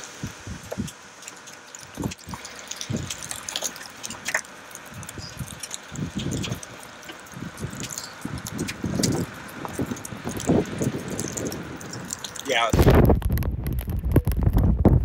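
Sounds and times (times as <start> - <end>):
light ticks and rustles: 0.0 - 12.7
wind buffeting microphone: 0.2 - 1.0, 1.8 - 3.4, 4.9 - 15.0
steady rushing noise: 7.3 - 15.0.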